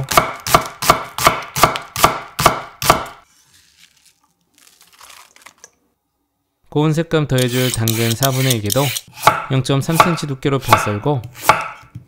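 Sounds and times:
knife slicing onion on board: 0:07.8 - 0:12.0.

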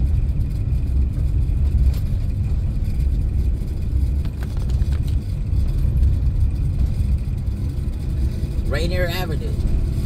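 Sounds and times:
car engine rumble: 0:00.0 - 0:10.0
road noise: 0:00.0 - 0:10.0.

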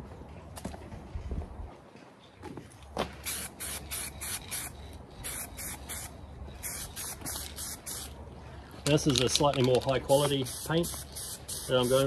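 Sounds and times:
spray paint can spraying: 0:03.2 - 0:08.2, 0:09.1 - 0:12.0.

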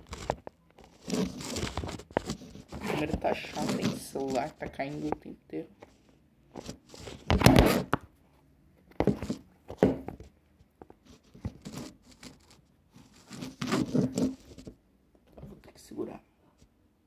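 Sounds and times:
fingers rubbing phone microphone: 0:00.0 - 0:05.2, 0:11.0 - 0:14.8.

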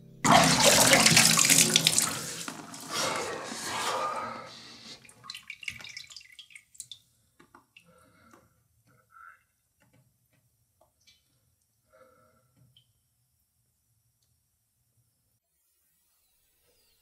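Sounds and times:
water dripping: 0:00.2 - 0:03.6, 0:05.0 - 0:08.3
bathwater splashing: 0:00.2 - 0:07.0.

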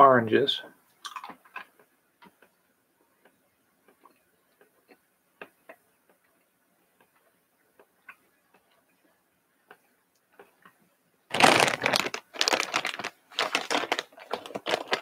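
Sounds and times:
mouth chewing: 0:01.0 - 0:01.8.

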